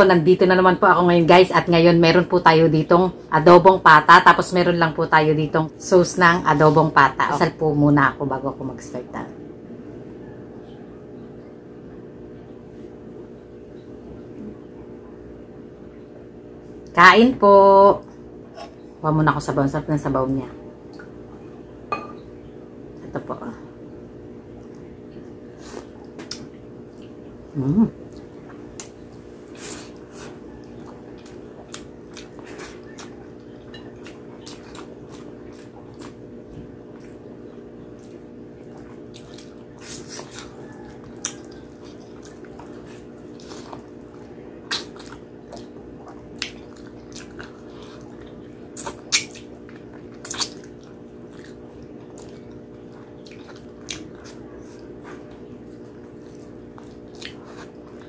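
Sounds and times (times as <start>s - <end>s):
steady low hum: 0.0s - 58.0s
wet chewing: 24.4s - 58.0s
lip smacks: 28.0s - 29.0s, 38.0s - 58.0s.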